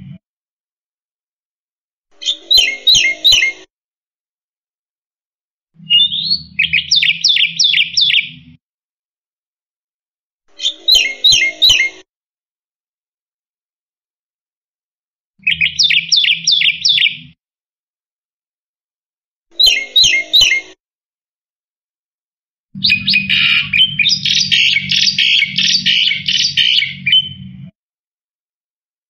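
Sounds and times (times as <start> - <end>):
bird singing rapid high notes: 5.9 - 8.3, 22.8 - 27.4.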